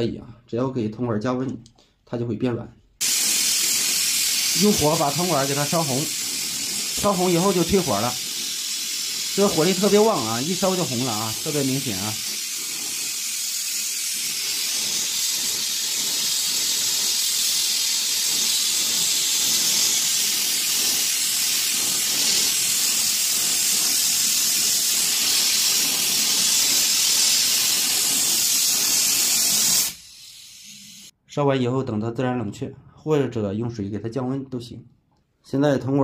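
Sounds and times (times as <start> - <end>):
gas torch flame hissing: 3.0 - 31.1.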